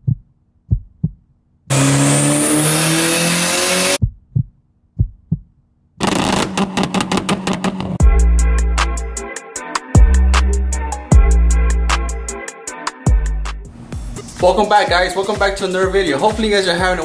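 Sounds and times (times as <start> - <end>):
deep thumps: 0.0 - 1.3, 4.0 - 5.6
car engine revving: 1.7 - 4.0, 6.0 - 8.0
music with heavy bass beat: 6.0 - 17.0.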